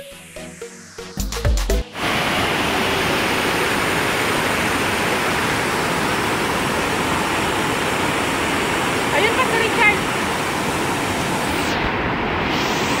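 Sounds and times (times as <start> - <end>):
music: 0.0 - 2.0
river water rushing over boulders: 2.0 - 13.0.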